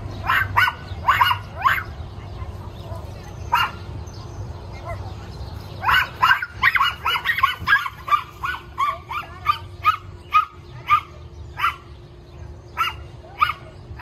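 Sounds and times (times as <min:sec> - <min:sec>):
small dog yapping: 0:00.2 - 0:01.9, 0:03.5 - 0:03.8, 0:05.8 - 0:11.9.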